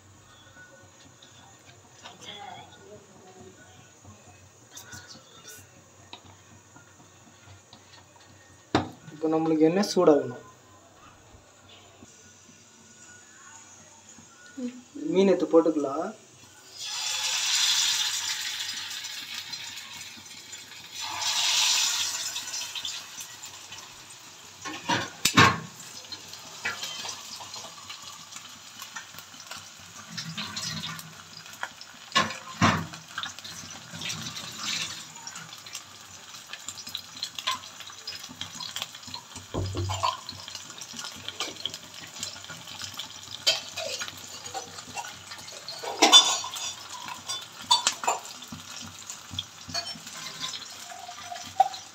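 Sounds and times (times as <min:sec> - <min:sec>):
fish sizzling in hot oil: 0:11.7 - 0:51.9.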